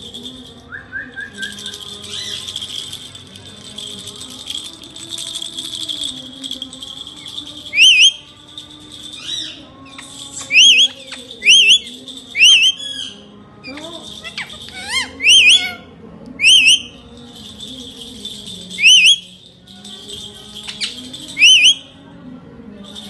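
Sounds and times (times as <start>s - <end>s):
parakeet shrill calls: 7.8s - 8.2s, 10.4s - 13.1s, 14.2s - 15.8s, 16.4s - 17.0s, 18.8s - 19.2s, 21.4s - 21.8s.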